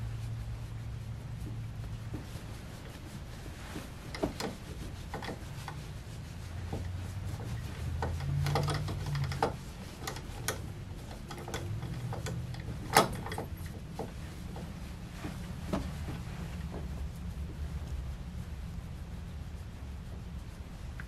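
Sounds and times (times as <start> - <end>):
towel rubbing wet dog: 0.0 - 12.8, 13.4 - 21.0
low hum: 0.0 - 21.0
light clicks and knocks: 3.6 - 5.9, 6.6 - 17.0.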